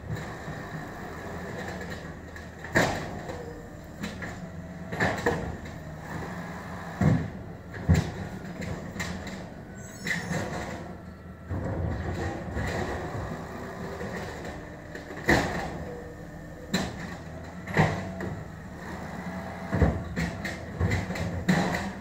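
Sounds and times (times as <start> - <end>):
garbage truck engine and hydraulics: 0.0 - 22.0
cart banging against hopper: 16.7 - 18.4, 19.7 - 22.0.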